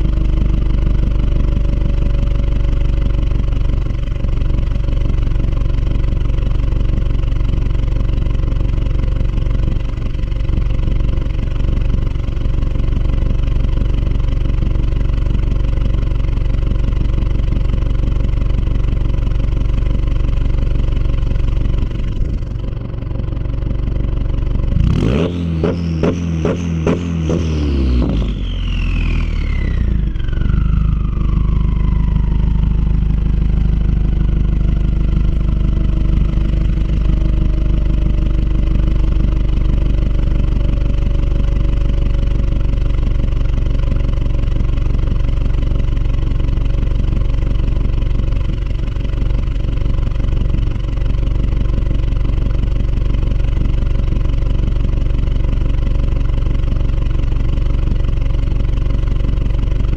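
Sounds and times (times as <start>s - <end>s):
car engine idling: 0.0s - 59.9s
turbo whine: 24.7s - 46.8s.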